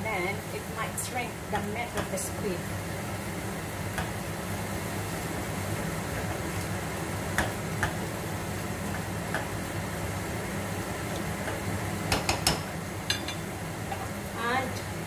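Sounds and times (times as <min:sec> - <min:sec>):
spatula tapping frying pan: 0:07.3 - 0:08.0, 0:08.9 - 0:09.6, 0:11.4 - 0:14.0.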